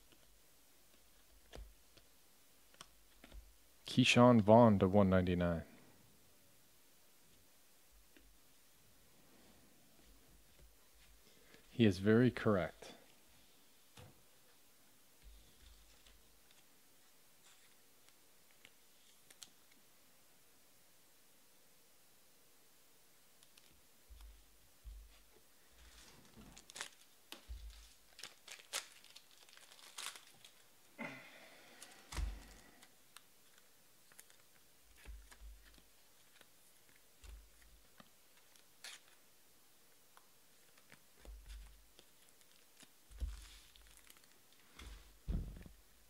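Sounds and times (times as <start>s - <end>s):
wrapper crinkling and tearing: 25.9s - 30.7s, 31.8s - 39.2s, 40.6s - 44.6s.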